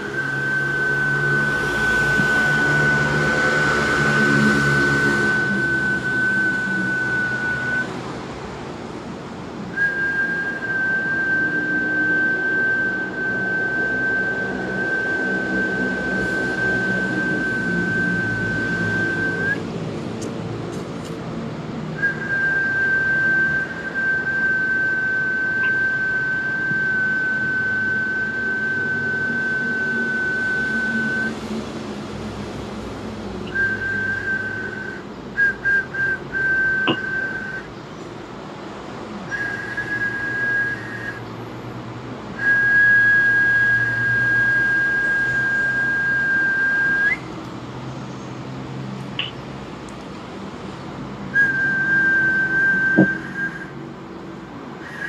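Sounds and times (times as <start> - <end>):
high whistled note: 0.0 - 8.0, 9.8 - 19.6, 22.0 - 31.4, 33.4 - 37.7, 39.3 - 41.3, 42.4 - 47.2, 49.2 - 49.4, 51.4 - 53.8
quick whistle toots: 0.0 - 8.0, 9.8 - 19.6, 22.0 - 31.4, 33.4 - 37.7, 39.3 - 41.3, 42.4 - 47.3, 49.2 - 49.4, 51.4 - 53.8.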